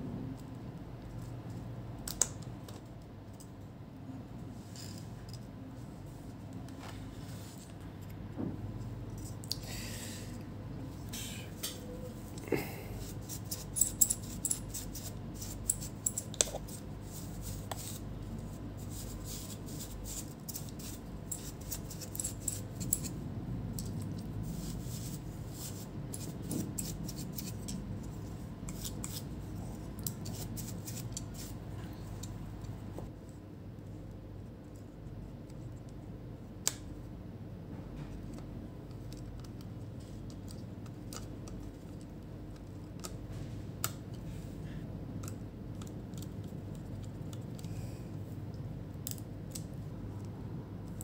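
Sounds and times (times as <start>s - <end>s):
brush sweeping fan: 4.2s - 35.8s
bristles clicking fan blades: 11.5s - 32.9s.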